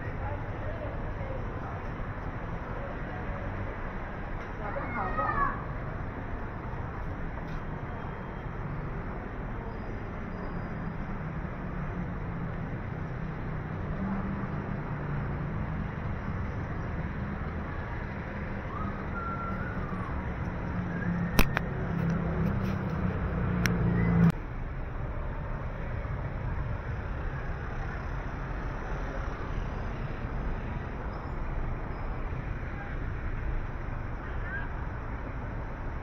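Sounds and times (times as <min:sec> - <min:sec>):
steady street hum: 0:00.0 - 0:36.0
vehicle engine rumbling: 0:05.5 - 0:36.0
sharp click: 0:21.2 - 0:22.2.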